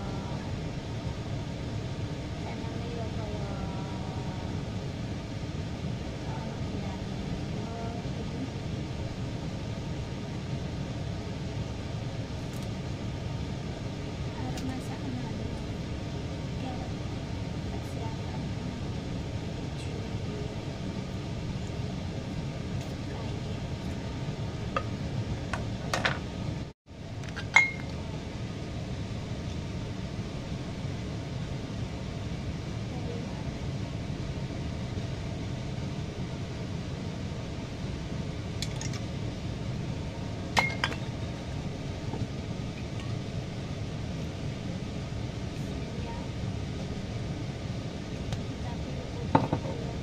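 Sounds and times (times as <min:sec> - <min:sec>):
steady background hum: 0:00.0 - 0:50.0
glass bottles clinking on ceramic dish: 0:27.4 - 0:27.9, 0:40.6 - 0:41.1.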